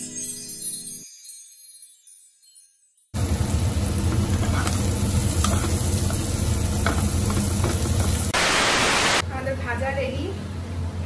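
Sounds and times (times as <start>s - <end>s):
peppers sizzling in oil: 3.2s - 9.2s
wooden spatula scraping pan: 4.1s - 6.2s
loud hiss: 8.3s - 9.2s.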